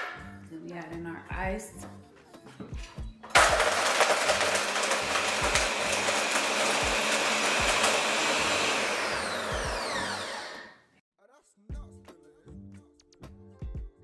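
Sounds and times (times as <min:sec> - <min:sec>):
blender blending ice: 0:03.3 - 0:10.8.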